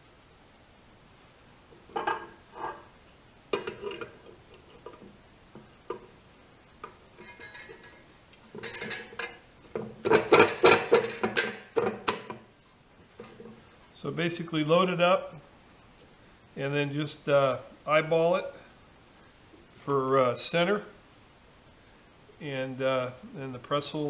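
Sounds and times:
steel parts clinking and knocking: 0:01.9 - 0:02.9, 0:03.5 - 0:05.2, 0:06.8 - 0:12.4.

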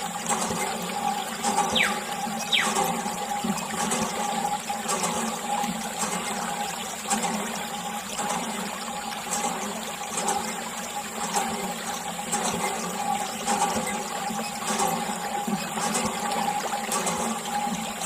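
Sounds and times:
steady hum: 0:01.6 - 0:03.5.

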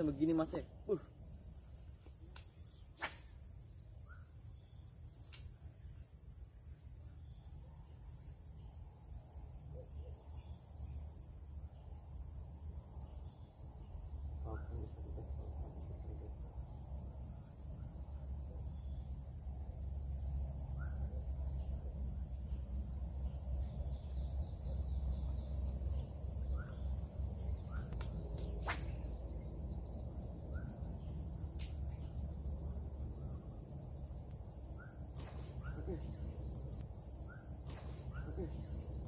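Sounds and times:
crickets and insects chirping: 0:00.0 - 0:39.0
bird chirps: 0:20.7 - 0:21.3, 0:23.6 - 0:29.2, 0:37.2 - 0:39.0
sharp clicks: 0:27.9 - 0:28.9.

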